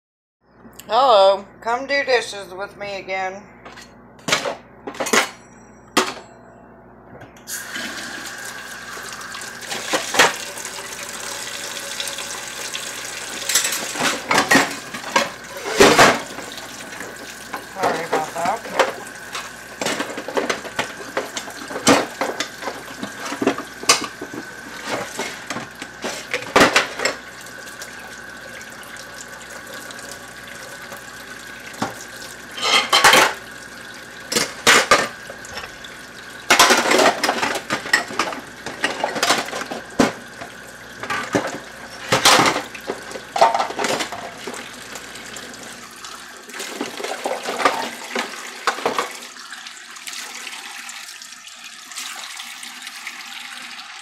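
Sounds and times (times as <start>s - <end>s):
faucet water into sink: 7.5s - 54.0s
dishes and cutlery clinking: 13.4s - 16.2s, 32.6s - 33.4s.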